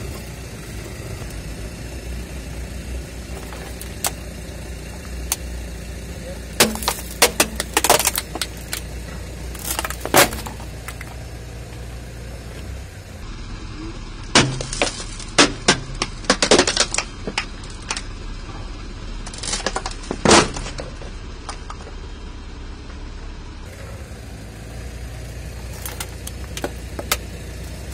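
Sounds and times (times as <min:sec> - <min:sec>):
car engine humming: 0:00.0 - 0:27.9
plastic toy cracking under tyre: 0:06.6 - 0:08.9, 0:14.4 - 0:18.1, 0:19.3 - 0:20.8.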